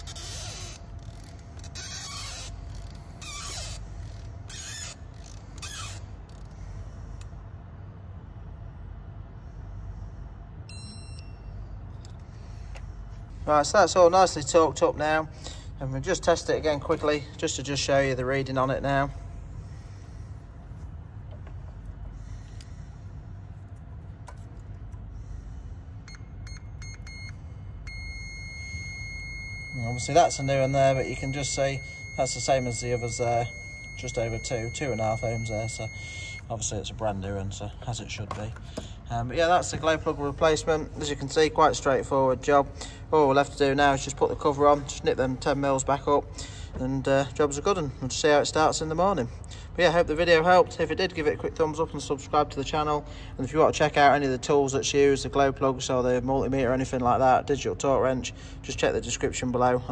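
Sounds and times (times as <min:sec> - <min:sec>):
multimeter beeping: 0:00.0 - 0:02.5, 0:10.7 - 0:11.5, 0:26.0 - 0:36.5.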